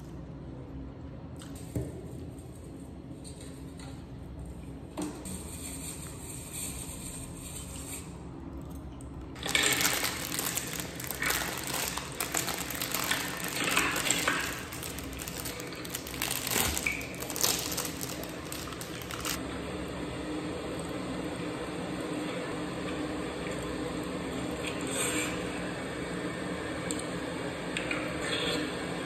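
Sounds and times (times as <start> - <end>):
plastic wrapper crinkling: 9.4 - 19.4.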